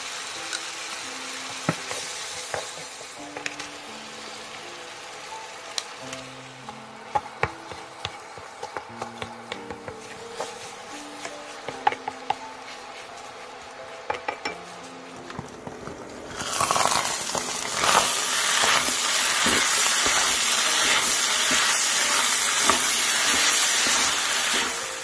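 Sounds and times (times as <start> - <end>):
rice sizzling in a frying pan: 0.0 - 25.0
spatula scraping and tapping pan: 6.6 - 16.0, 18.7 - 24.7.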